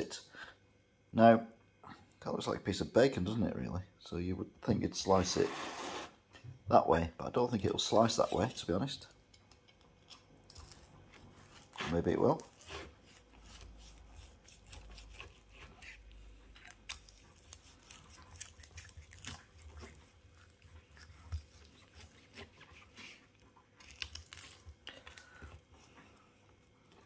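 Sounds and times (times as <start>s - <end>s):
knife sawing through crispy crackling: 7.7s - 9.0s, 10.5s - 26.3s.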